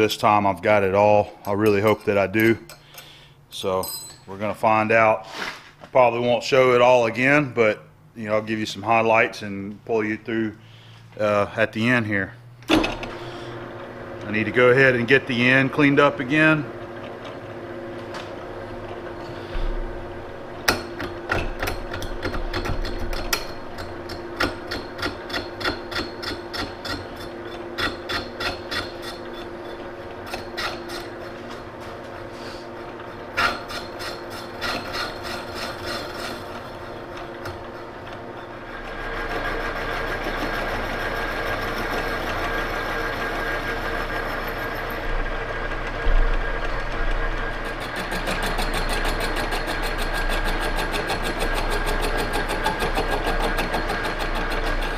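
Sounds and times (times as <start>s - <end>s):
lathe scraping cut with ring: 20.4s - 54.9s
lathe tool ticking: 33.6s - 54.9s.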